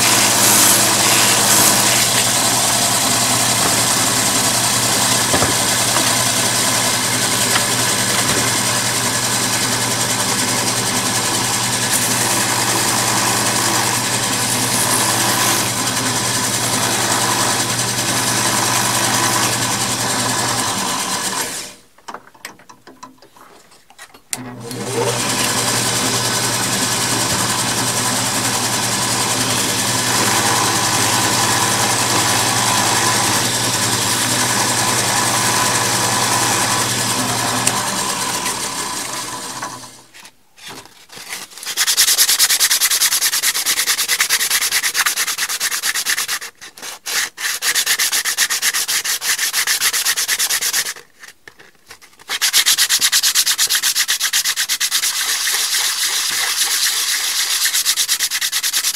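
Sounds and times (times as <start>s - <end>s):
sandpaper rubbing spinning wood: 0.0s - 21.6s, 25.1s - 40.2s, 40.8s - 51.1s, 52.2s - 58.9s
drill press humming: 0.0s - 21.8s, 24.4s - 40.1s.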